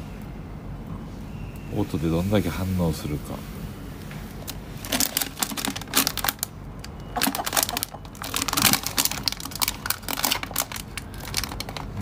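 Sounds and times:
plastic bag crinkling: 4.3s - 12.0s.

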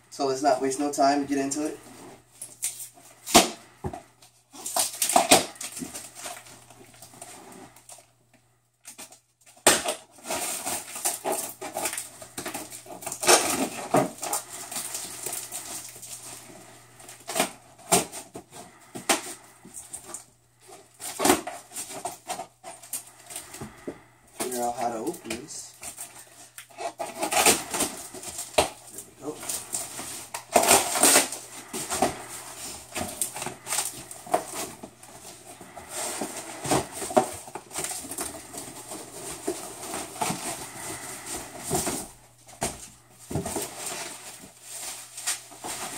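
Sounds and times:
packing tape being cut and ripped: 4.5s - 6.5s, 8.8s - 16.3s, 25.8s - 34.9s.

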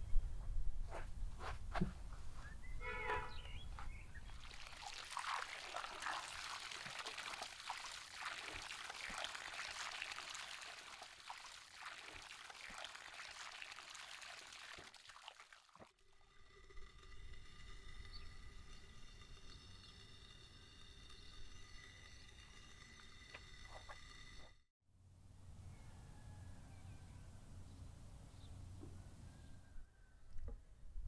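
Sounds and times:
tap water pouring into basin: 4.2s - 24.5s
hands splashing rinsing meat: 4.3s - 15.9s.

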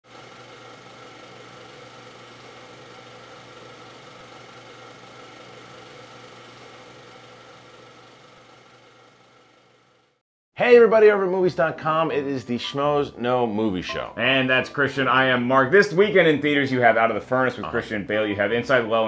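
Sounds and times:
mechanical whirring with hum: 0.1s - 10.2s.

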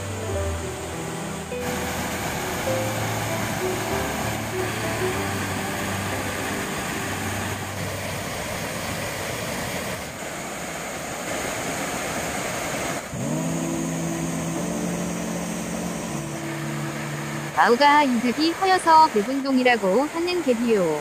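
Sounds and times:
low background music notes: 0.0s - 8.0s, 13.4s - 19.3s
stream pouring over waterfall: 0.0s - 21.0s.

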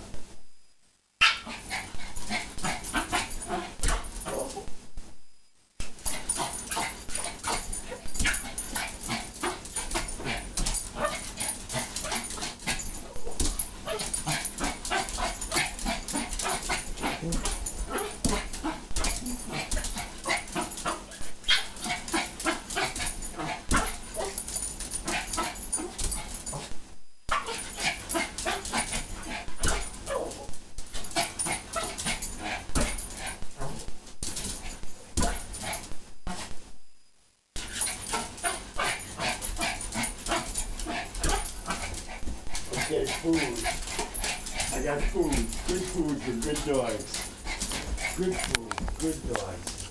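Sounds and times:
small dog yipping and barking: 1.2s - 1.5s, 21.4s - 21.8s, 27.3s - 27.6s.

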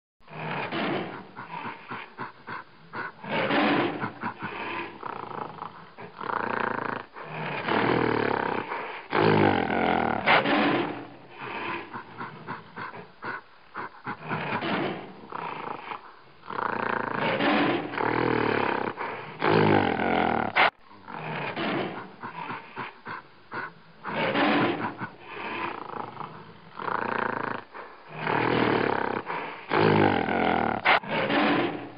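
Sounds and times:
big animal roars and growls: 14.1s - 22.8s, 24.1s - 31.9s.

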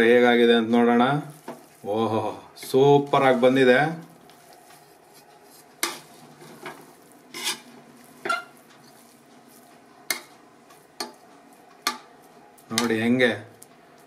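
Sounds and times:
ladle scraping rice in pot: 5.1s - 9.6s.

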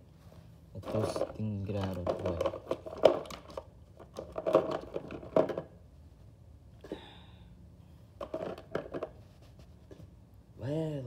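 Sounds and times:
plastic toys clicking and rattling: 0.8s - 5.8s, 8.2s - 9.2s.

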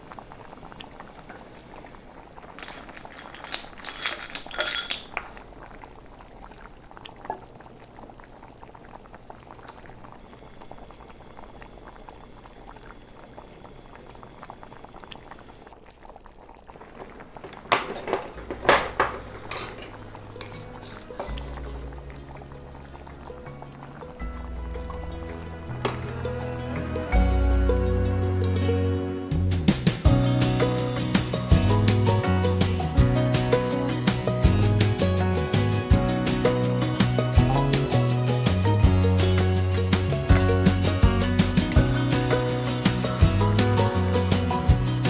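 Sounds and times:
pot bubbling: 0.0s - 27.2s
metal utensil scraping pot: 2.6s - 5.4s, 17.0s - 22.2s.

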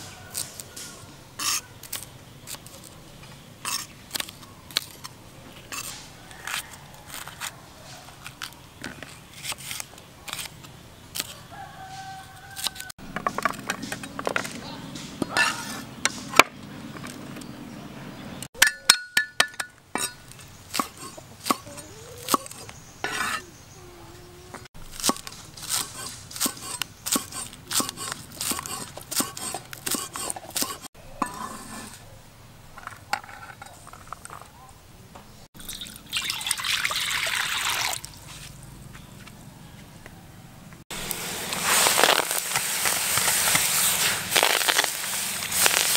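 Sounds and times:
oil sizzling in a wok: 41.0s - 45.9s.

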